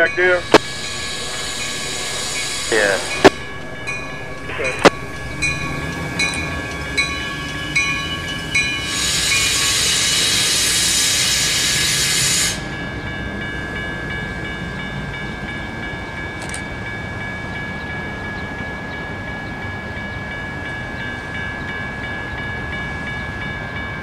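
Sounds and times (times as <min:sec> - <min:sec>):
air hissing from train: 0:00.0 - 0:04.8, 0:05.4 - 0:12.8
train bell ringing: 0:00.0 - 0:24.0
train rumbling: 0:00.0 - 0:24.0.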